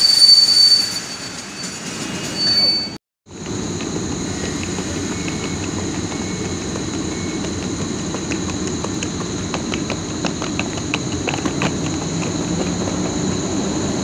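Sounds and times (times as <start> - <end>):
locomotive high whine: 0.0 - 14.0
locomotive low rumble: 3.3 - 14.0.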